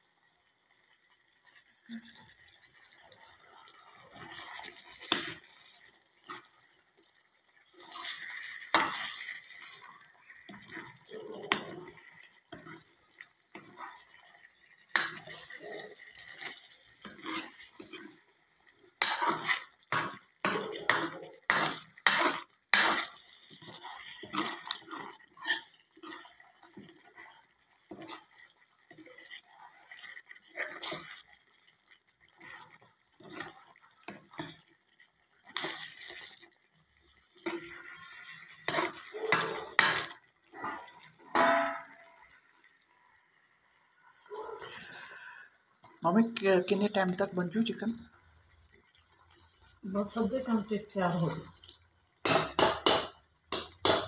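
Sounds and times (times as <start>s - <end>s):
curry sizzling: 0.0s - 54.0s
metal ladle scraping and knocking pot: 7.9s - 9.4s, 16.4s - 18.1s, 19.0s - 26.2s, 37.4s - 42.1s, 52.2s - 54.0s.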